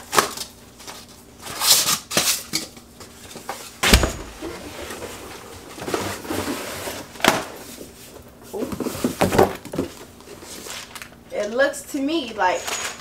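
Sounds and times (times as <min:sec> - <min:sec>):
heavy thud on floor: 0:03.8 - 0:04.4
cardboard box scraping and sliding: 0:04.6 - 0:07.1.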